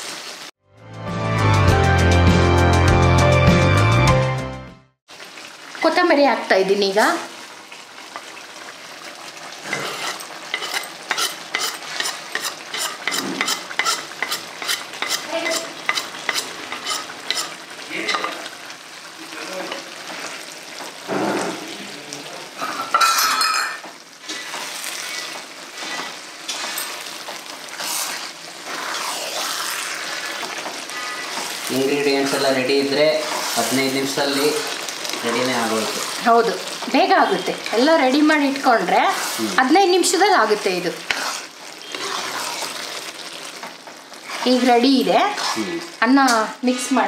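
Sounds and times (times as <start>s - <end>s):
food sizzling in a pan: 0.0s - 0.6s, 5.1s - 47.0s
spatula scraping metal pan: 9.6s - 18.4s, 23.0s - 36.2s, 40.4s - 43.1s, 44.2s - 45.8s.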